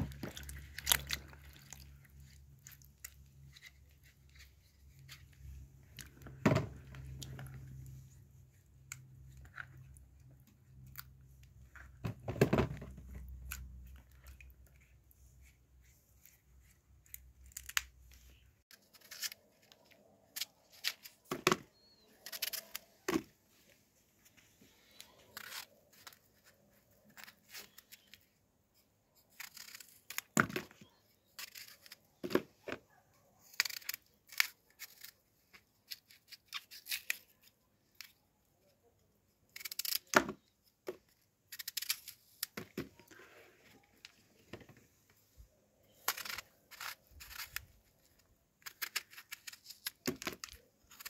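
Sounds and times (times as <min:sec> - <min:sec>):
knife cutting crisp apples: 0:18.7 - 0:23.3.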